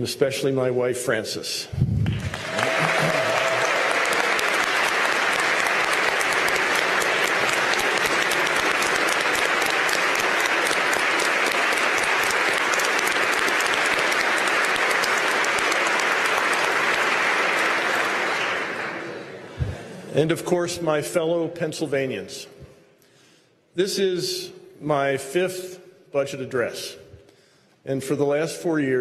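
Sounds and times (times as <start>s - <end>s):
audience applauding: 2.0s - 19.5s.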